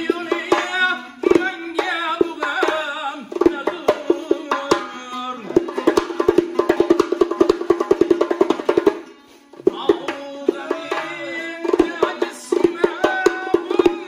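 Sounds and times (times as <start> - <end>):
man singing: 0.0 - 6.6, 9.5 - 14.0
frame drum: 0.0 - 14.0.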